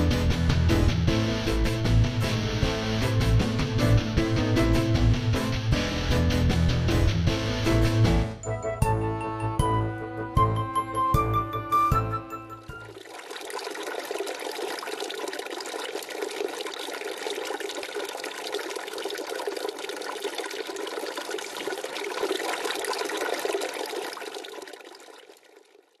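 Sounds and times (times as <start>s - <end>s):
water falling from fountain spout: 12.8s - 26.0s.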